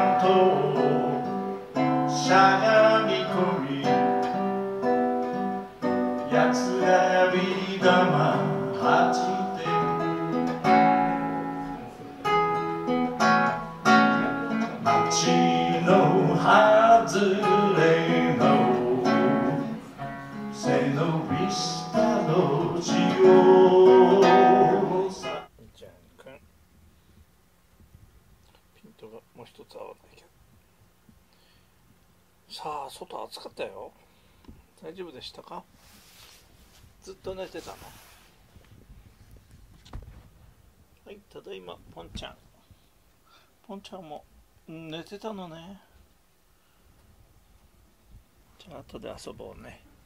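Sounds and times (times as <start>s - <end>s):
man singing: 0.0s - 4.5s, 6.2s - 11.0s, 14.2s - 25.5s
acoustic guitar: 0.0s - 25.5s.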